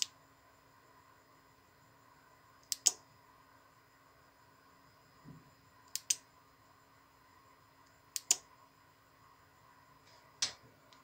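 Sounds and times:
small switch clicking: 2.6 - 3.0, 5.9 - 6.2, 8.2 - 8.5.

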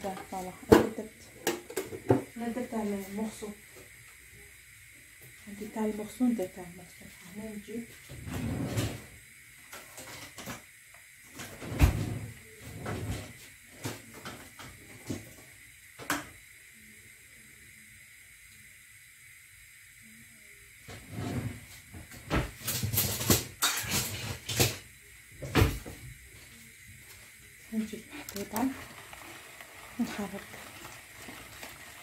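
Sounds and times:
kitchen items knocking and clattering: 0.0 - 2.4, 22.0 - 26.0.

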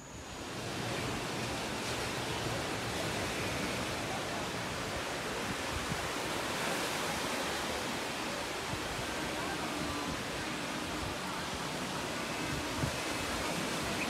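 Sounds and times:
surf breaking on a beach: 0.0 - 14.0
wind: 0.0 - 14.0.

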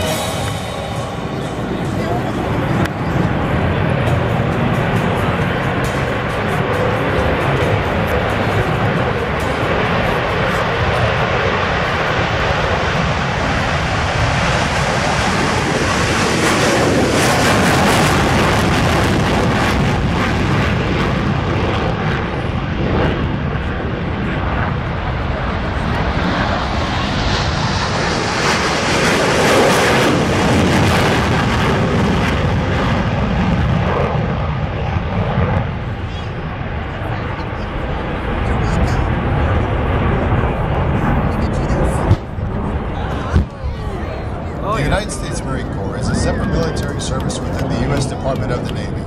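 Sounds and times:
jet engine roar: 0.0 - 49.0.

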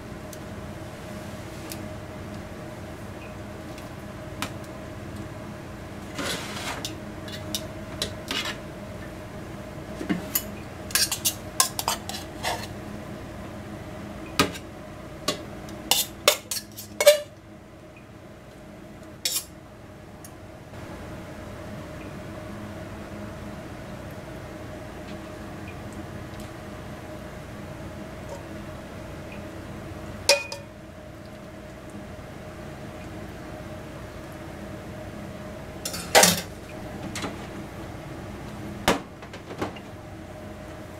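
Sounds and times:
faint steady hum: 0.0 - 40.9
metal spoons clinking on pot: 30.3 - 30.7, 35.9 - 36.5.

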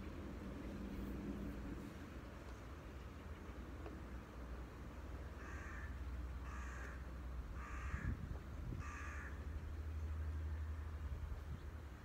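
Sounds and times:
crow cawing: 5.4 - 7.0, 7.6 - 8.2, 8.8 - 9.4.

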